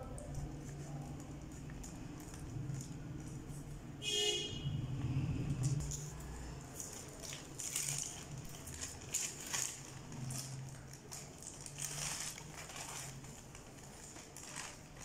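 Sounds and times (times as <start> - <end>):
plastic packaging crinkling: 5.6 - 15.0.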